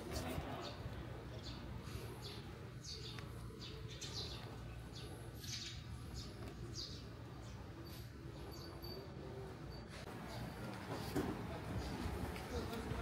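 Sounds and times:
small birds chirping: 0:00.4 - 0:09.1.

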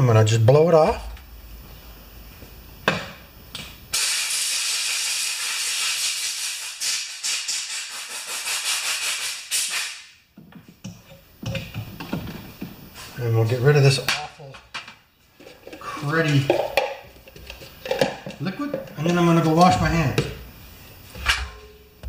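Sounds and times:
air blow gun hissing: 0:03.9 - 0:10.2.

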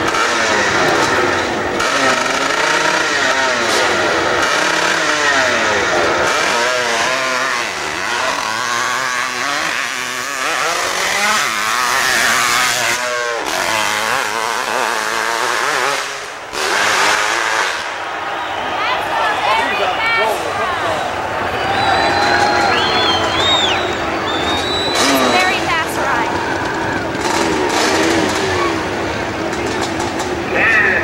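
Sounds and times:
dirt bike engine revving: 0:00.0 - 0:31.0.

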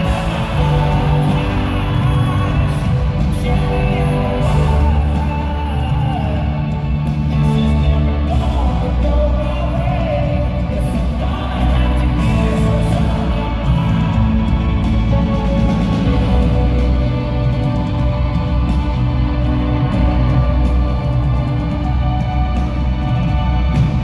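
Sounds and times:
man singing: 0:00.0 - 0:17.5
rock band playing: 0:00.0 - 0:24.0.

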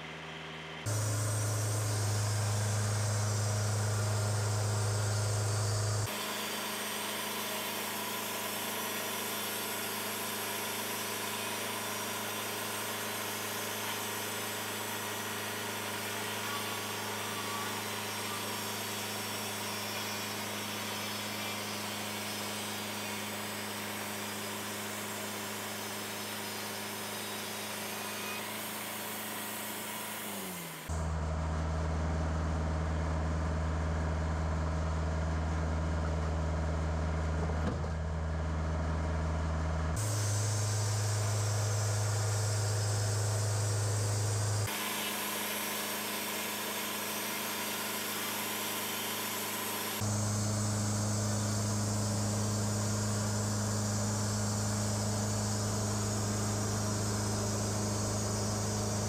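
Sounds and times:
sawmill engine humming: 0:00.0 - 0:59.0
band blade sawing through log: 0:00.9 - 0:31.0.

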